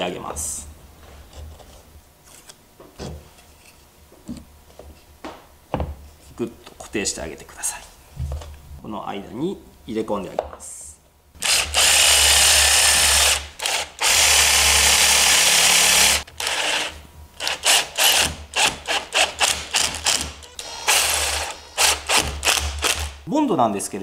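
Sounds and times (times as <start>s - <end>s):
power drill driving screws: 11.4s - 23.2s.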